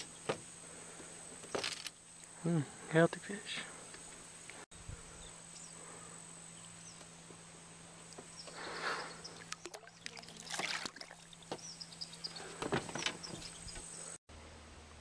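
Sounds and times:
water splashing and sloshing: 9.3s - 11.6s.

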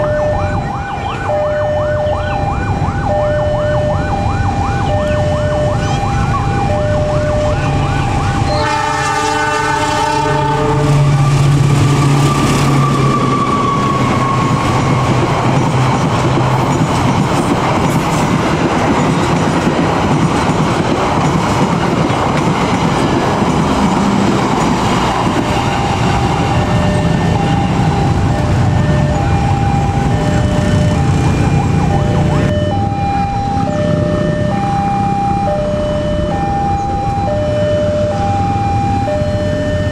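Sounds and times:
level-crossing alarm ringing: 0.0s - 18.0s, 22.7s - 39.9s
train rumbling past: 4.1s - 39.7s
train horn: 8.4s - 15.2s.

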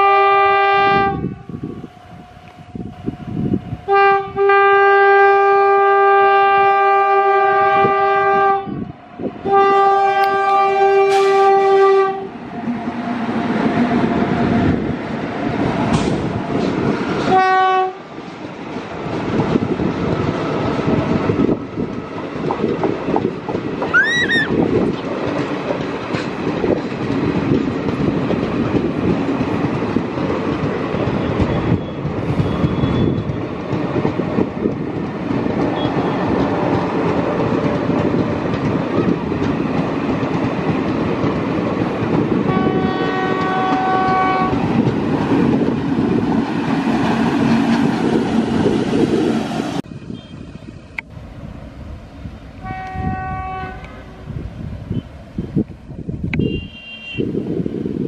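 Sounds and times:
locomotive horn: 0.0s - 1.5s, 2.4s - 12.4s, 17.3s - 18.1s, 42.5s - 44.6s, 52.6s - 54.2s, 56.3s - 57.4s
train rolling past: 0.0s - 56.4s
wheels clattering over rail joints: 20.6s - 31.8s, 32.6s - 42.4s.

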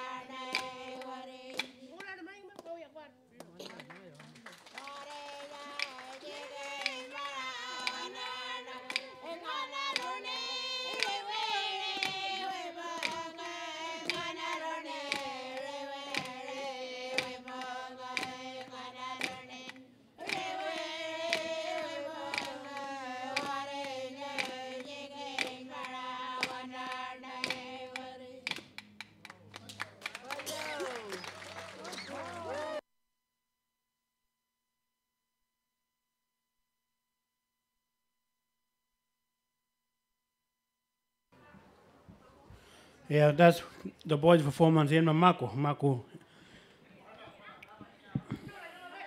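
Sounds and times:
person singing sliding phrases: 5.1s - 28.6s
sharp percussive strikes: 7.7s - 9.2s, 13.0s - 13.3s.

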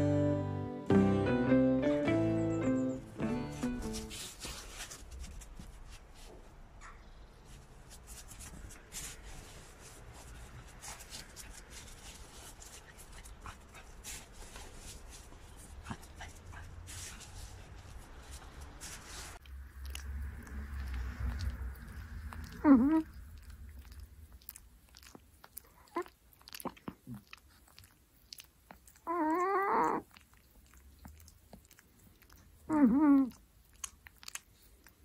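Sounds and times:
faint dog noises: 20.8s - 35.0s.

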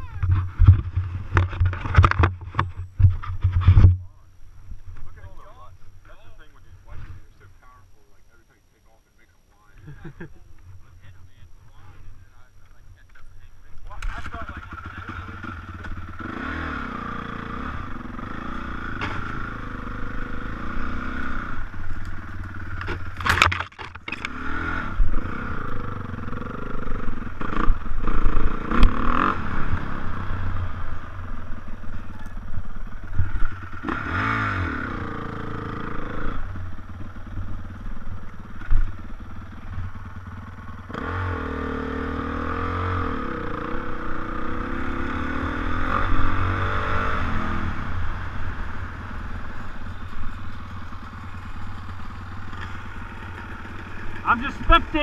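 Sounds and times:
dirt bike engine revving: 13.8s - 55.0s.

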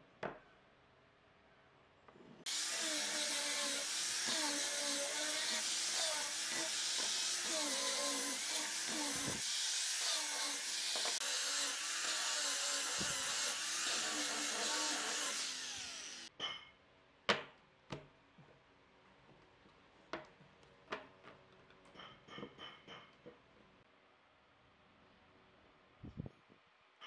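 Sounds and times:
power sander on wood: 2.5s - 16.3s.

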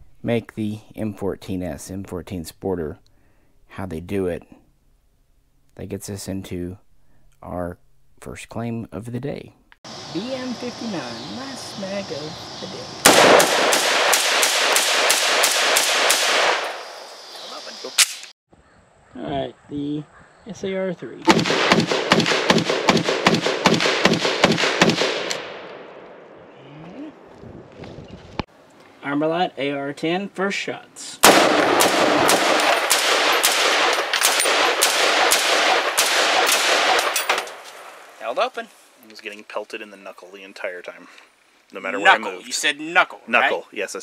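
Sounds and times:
rifle shots: 13.0s - 17.0s, 18.0s - 18.3s, 21.3s - 26.2s, 31.2s - 38.0s.

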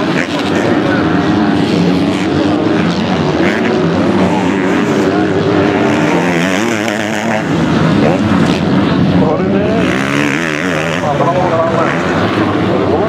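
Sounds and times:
motocross bike engines revving: 0.0s - 13.0s.

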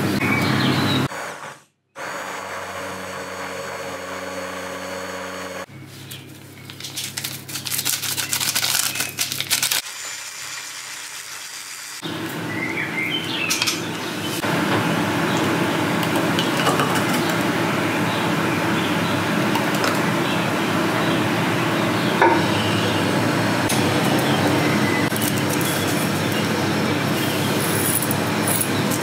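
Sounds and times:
immersion blender motor humming: 2.0s - 5.7s
birds chirping: 12.4s - 14.4s.

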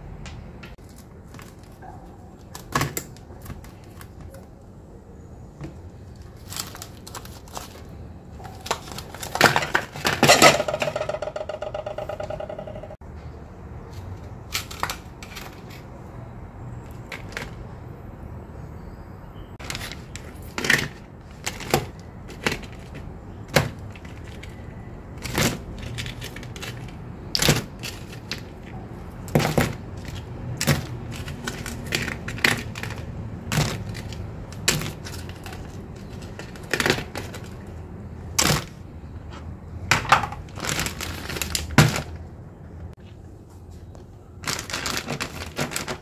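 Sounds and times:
kitchen knocks and clicks: 9.2s - 13.0s.

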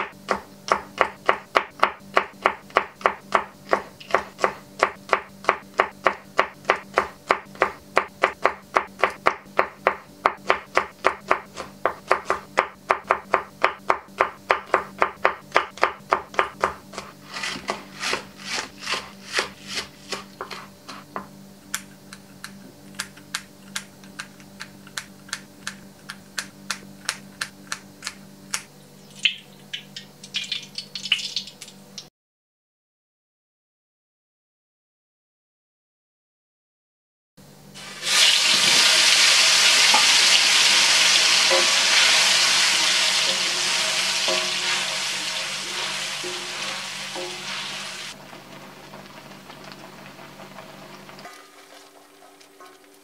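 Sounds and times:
knife chopping on wooden board: 0.0s - 21.4s.

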